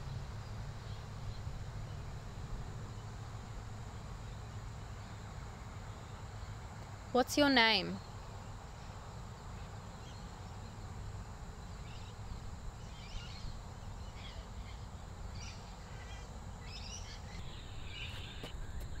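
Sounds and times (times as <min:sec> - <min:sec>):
faint high-pitched whine: 0:00.0 - 0:19.0
bird chirps: 0:12.8 - 0:19.0.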